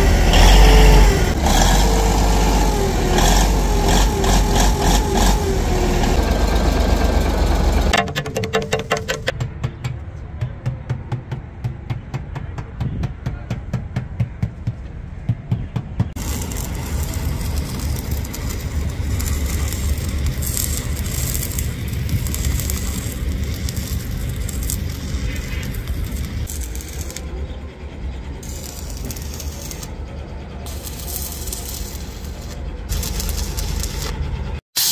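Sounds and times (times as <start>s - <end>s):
low engine-like rumble with hiss: 16.2s - 34.6s
low hum: 16.2s - 34.6s.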